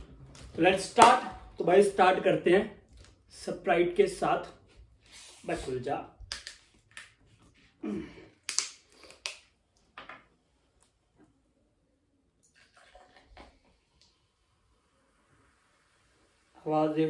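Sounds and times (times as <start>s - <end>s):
soda pouring into glass: 12.4s - 16.6s
fizz hissing: 12.5s - 17.0s.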